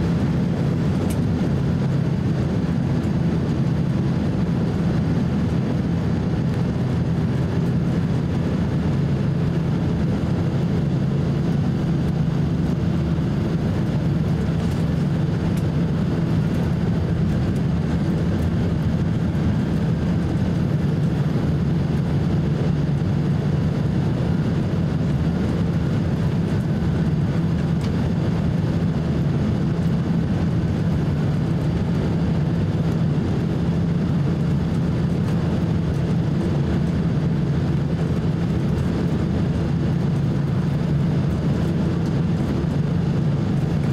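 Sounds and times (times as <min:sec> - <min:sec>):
airliner cabin rumble: 0:00.0 - 0:43.9.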